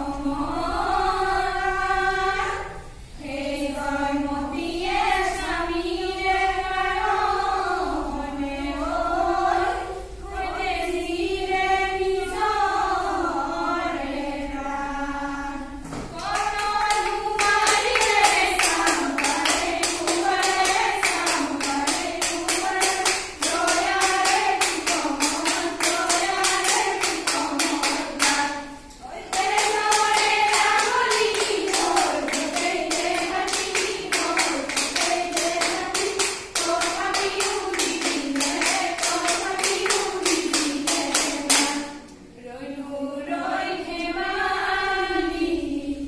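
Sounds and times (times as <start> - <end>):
women singing together: 0.0 - 46.0
rhythmic hand clapping: 16.1 - 42.2.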